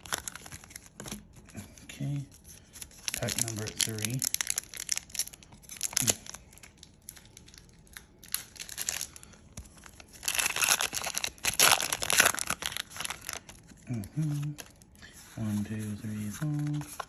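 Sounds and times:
foil wrapper crinkling and tearing: 0.0s - 14.9s.

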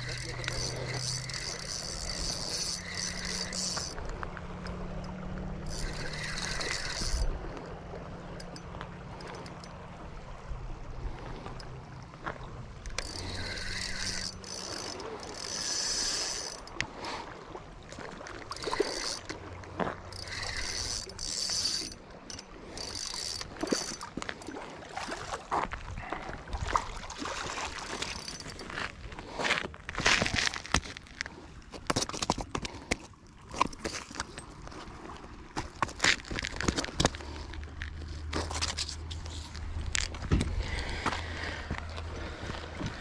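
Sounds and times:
fishing reel gears whirring: 0.0s - 10.1s, 12.7s - 17.3s, 17.9s - 24.5s, 27.6s - 28.9s
handling knocks and clicks: 29.9s - 34.8s.

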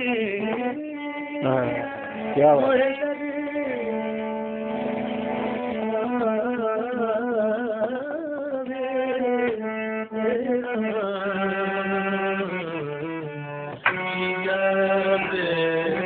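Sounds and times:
man singing: 0.0s - 4.2s, 14.1s - 16.0s.

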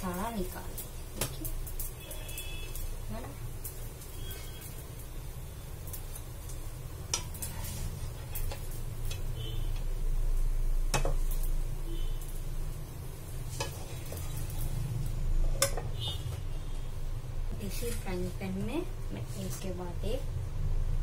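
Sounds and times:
spatula scraping a frying pan: 7.2s - 9.8s, 13.4s - 14.8s.

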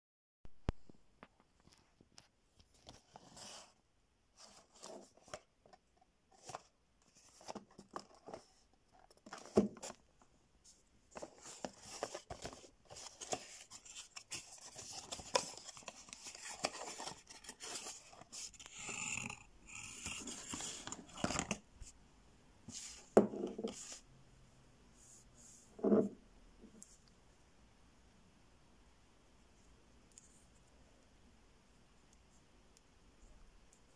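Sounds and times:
card and wrapping rustling: 4.4s - 21.6s.

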